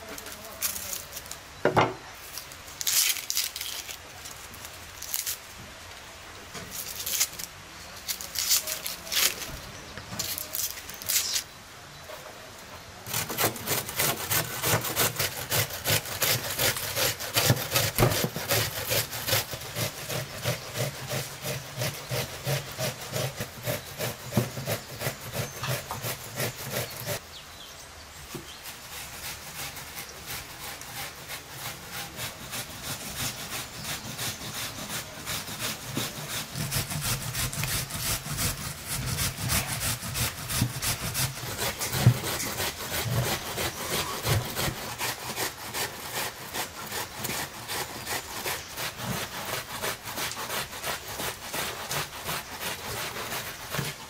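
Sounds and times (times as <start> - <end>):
rasping strokes of food preparation: 13.0 - 27.2, 28.4 - 54.0.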